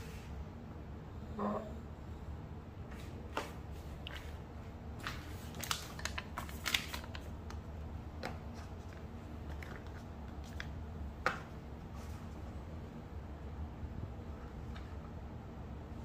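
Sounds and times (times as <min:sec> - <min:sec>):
steady low hum: 0:00.0 - 0:16.0
foil pouch crinkling: 0:05.0 - 0:07.6.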